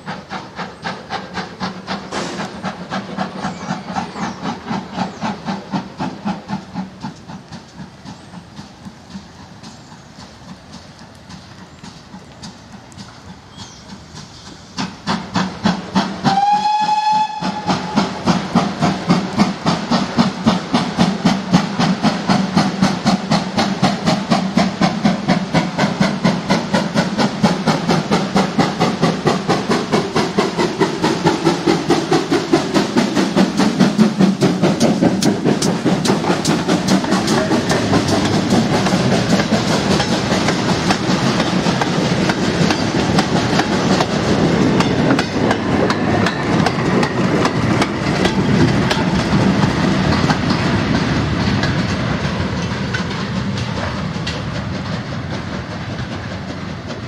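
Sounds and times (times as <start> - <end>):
steam locomotive exhaust beating: 0.0 - 57.0
train wheels clattering: 0.0 - 57.0
steam locomotive whistle: 16.2 - 18.2.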